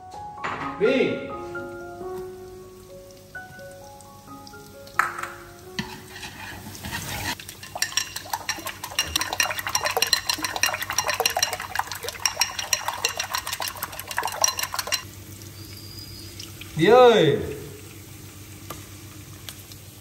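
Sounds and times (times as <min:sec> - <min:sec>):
chopsticks clattering against bowl: 0:07.4 - 0:15.0.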